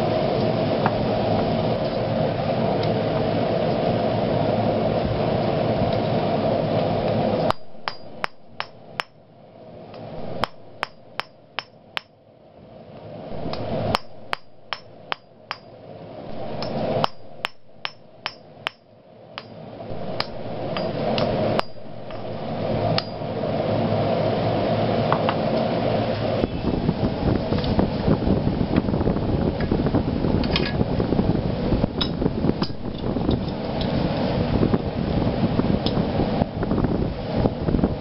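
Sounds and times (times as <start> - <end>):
hammer ringing on anvil: 16.6 - 18.8.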